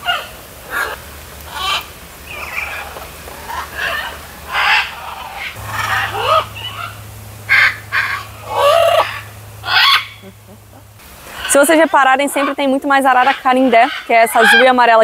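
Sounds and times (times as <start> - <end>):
macaws squawking: 0.0 - 15.0.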